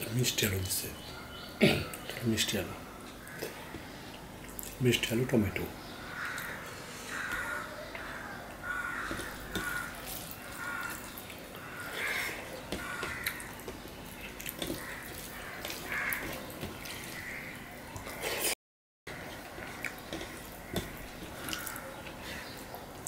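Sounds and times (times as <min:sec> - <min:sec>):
fingers kneading rice squelching: 0:07.1 - 0:18.2
chewing: 0:08.0 - 0:17.4, 0:19.2 - 0:23.0.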